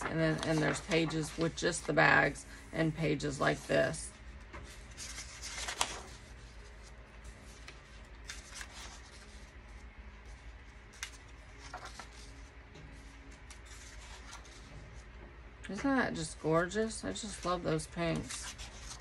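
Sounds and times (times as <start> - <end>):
paper rustling and sliding: 0.0 - 2.0, 4.6 - 15.1, 18.1 - 19.0
soft page flips: 0.0 - 2.0, 3.4 - 15.1, 17.2 - 19.0.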